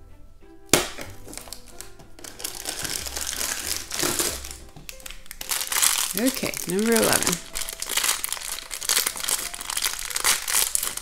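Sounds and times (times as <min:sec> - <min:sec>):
light background music: 0:00.0 - 0:11.0
sharp snap: 0:00.7 - 0:01.2
plastic bag and cardboard crinkling: 0:01.0 - 0:11.0.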